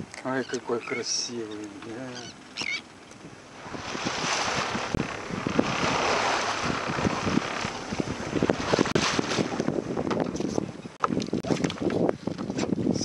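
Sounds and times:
sea water rushing around boat: 0.0s - 13.0s
wind buffeting microphone: 0.0s - 13.0s.

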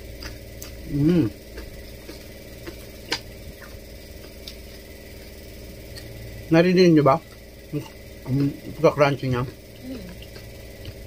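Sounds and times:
crispy skin crunching: 0.0s - 6.2s
person humming mm: 0.8s - 1.4s, 9.8s - 10.2s.

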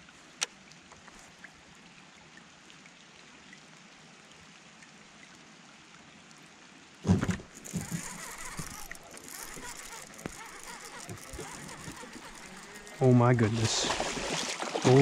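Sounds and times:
light rain on water: 0.0s - 15.0s
soft ticks: 7.6s - 13.0s.

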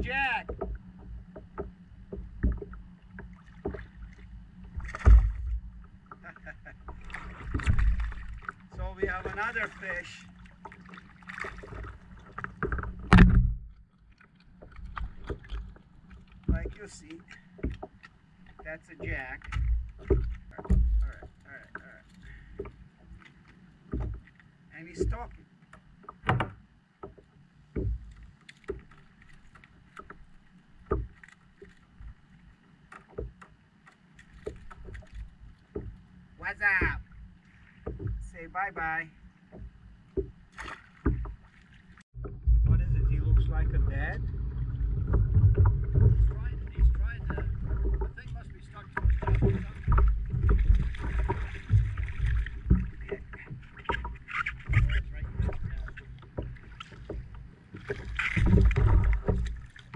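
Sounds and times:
gear knocking against kayak: 0.0s - 3.9s, 4.7s - 10.0s, 10.6s - 59.9s
water noise: 0.0s - 59.9s
wind noise: 42.2s - 53.1s.

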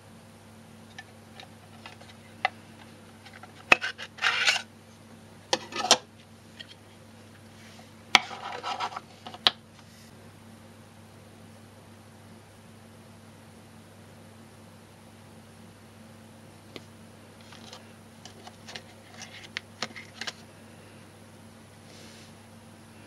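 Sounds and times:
scraping and rubbing: 1.3s - 2.5s, 3.2s - 4.7s, 7.6s - 9.4s, 17.4s - 20.4s.

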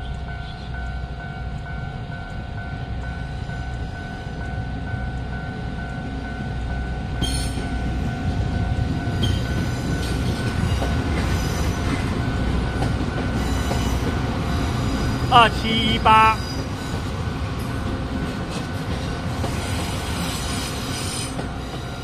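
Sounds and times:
diesel railcar rumble: 0.0s - 22.0s
level crossing alarm ringing: 12.2s - 16.6s.

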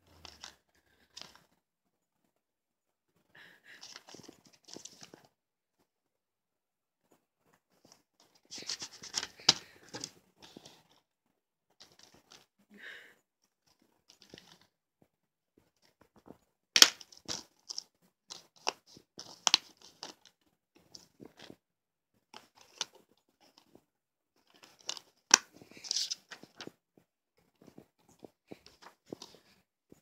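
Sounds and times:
paper insert crinkling: 3.8s - 5.3s, 8.3s - 11.0s, 24.4s - 26.8s.

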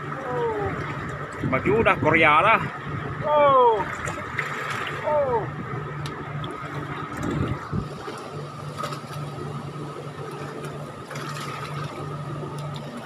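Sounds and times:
boat engine humming and whining: 0.0s - 13.0s.

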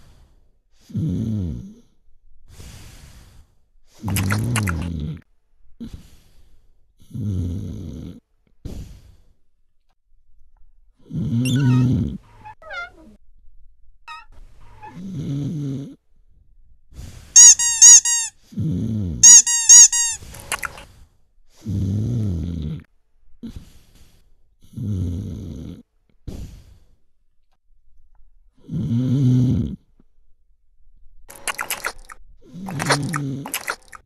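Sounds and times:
cartoon snoring: 0.8s - 2.0s, 4.0s - 6.3s, 7.0s - 9.2s, 11.0s - 12.5s, 14.8s - 16.0s, 17.4s - 20.8s, 21.5s - 26.9s, 28.6s - 29.9s, 32.5s - 33.9s
high cartoon squeaks: 11.4s - 13.2s, 14.1s - 15.1s, 17.4s - 18.3s, 19.2s - 20.8s.

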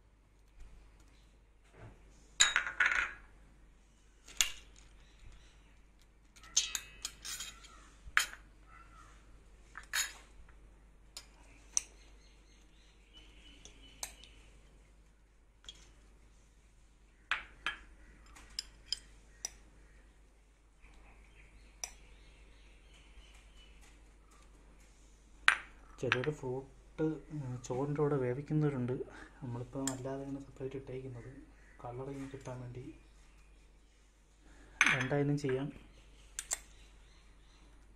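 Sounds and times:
spoons clinking on bowls and dishes: 6.4s - 8.4s.

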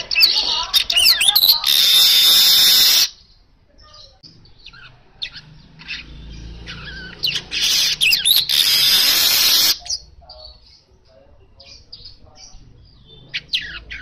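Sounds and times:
bird singing buzzy hissing song: 0.0s - 11.0s
bird chirps: 0.0s - 14.0s.

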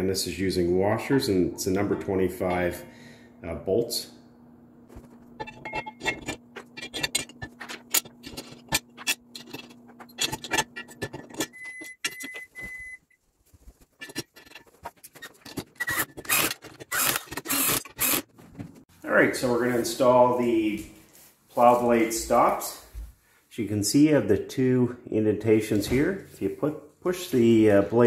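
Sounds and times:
low steady hum: 0.0s - 14.7s
cordless drill whirring: 15.9s - 18.2s.

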